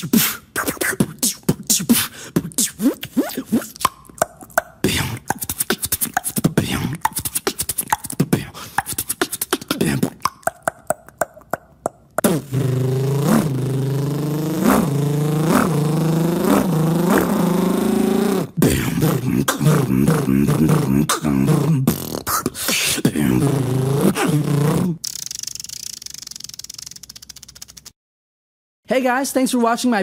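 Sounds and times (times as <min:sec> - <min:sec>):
buzzing hum with pitch swoops: 0:00.0 - 0:22.5
wavering vocal hum: 0:00.0 - 0:25.1
beatboxer mouth clicks: 0:00.0 - 0:28.0.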